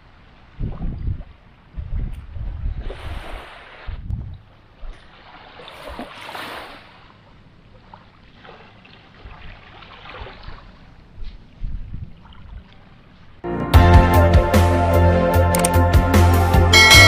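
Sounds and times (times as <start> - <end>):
wind buffeting microphone: 0.5 - 4.5, 11.6 - 12.7.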